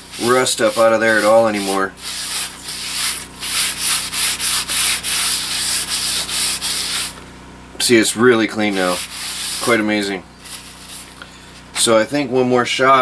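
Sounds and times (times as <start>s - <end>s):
paper towel rubbing in iron pan: 0.0s - 7.2s, 8.5s - 11.2s.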